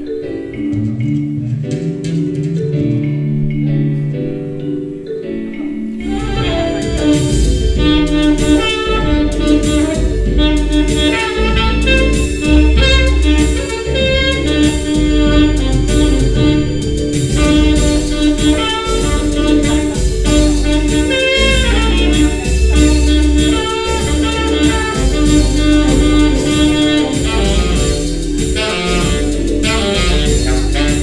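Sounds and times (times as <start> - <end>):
rhythmic pulse: 5.4 - 31.0
deep sustained bass line: 6.0 - 31.0
tenor saxophone playing jazz: 6.0 - 31.0.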